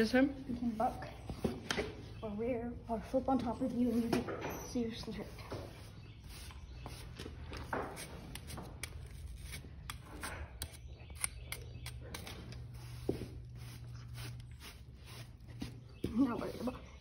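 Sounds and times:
brush scratching horse's coat: 0.0 - 1.8, 3.5 - 9.6, 12.5 - 16.8.

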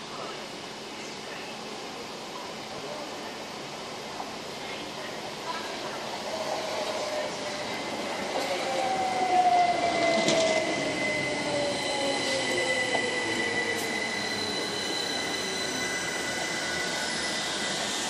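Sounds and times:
wheels rolling on rail: 5.7 - 17.8.

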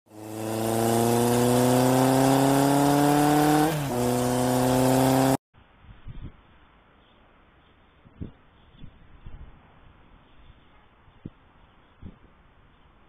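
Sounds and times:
motor accelerating: 0.1 - 5.4.

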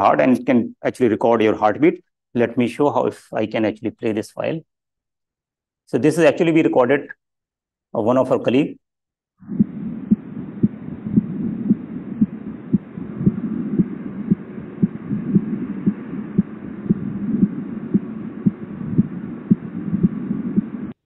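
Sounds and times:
heartbeat thuds: 9.4 - 21.0
steady hum: 9.4 - 21.0.

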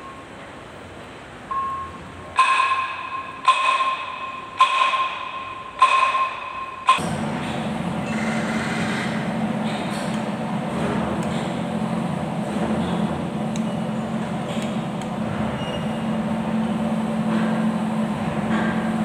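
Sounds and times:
steady machine hum: 0.0 - 19.0
sharp metallic strikes ringing: 2.4 - 7.2.

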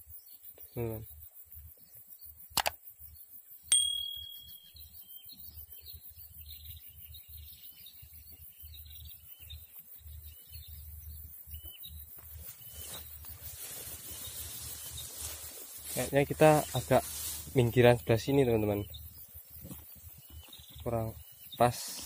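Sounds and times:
bell ding: 3.7 - 4.9
faint high chirps: 3.7 - 15.4.

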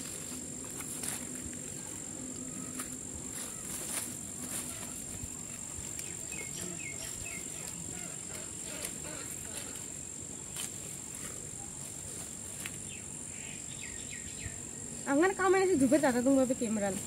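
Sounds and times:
hands rustling dry leaves: 0.0 - 13.0
high-pitched insect drone: 0.0 - 17.0.

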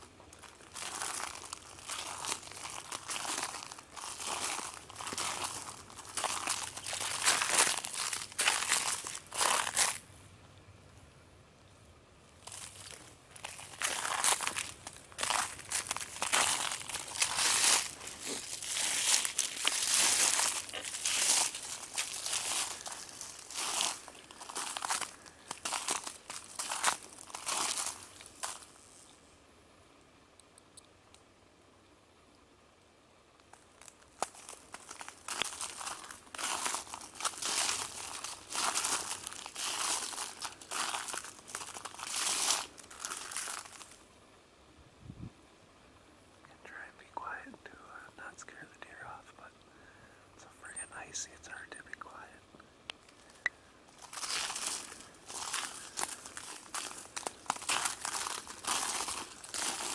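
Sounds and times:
footsteps crunching through icy snow: 0.2 - 10.0, 12.4 - 29.1, 33.5 - 44.0, 53.1 - 59.9.

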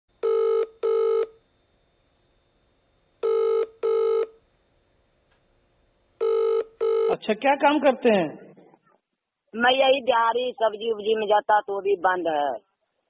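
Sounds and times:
telephone ringing tone: 0.2 - 1.4, 3.2 - 4.4, 6.2 - 7.2.

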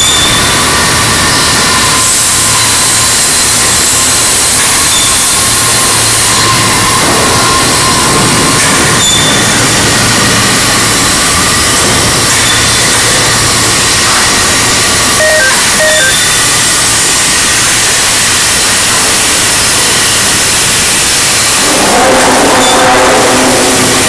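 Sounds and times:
overhead crane machinery noise: 0.0 - 24.0
short beeps: 15.2 - 16.6.

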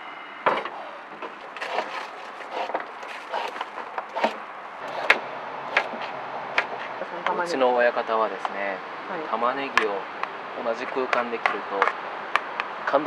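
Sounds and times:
peeler scraping carrot: 1.6 - 7.1.

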